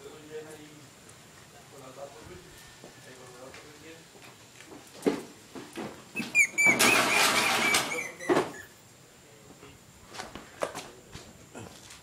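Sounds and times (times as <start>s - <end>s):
gate scraping with high squeak: 6.2s - 8.8s
chain-link gate rattling: 6.6s - 8.2s
gate knocking: 6.6s - 8.6s.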